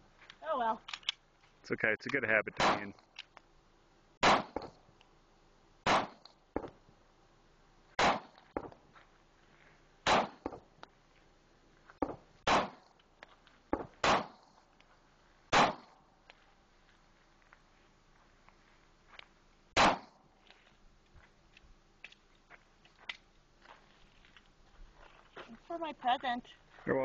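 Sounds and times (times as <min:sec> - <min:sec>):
pistol shots: 0:02.6 - 0:02.9, 0:04.2 - 0:04.7, 0:05.8 - 0:06.2, 0:08.0 - 0:08.4, 0:10.0 - 0:10.5, 0:12.4 - 0:12.8, 0:14.0 - 0:14.4, 0:15.5 - 0:15.9, 0:19.8 - 0:20.2.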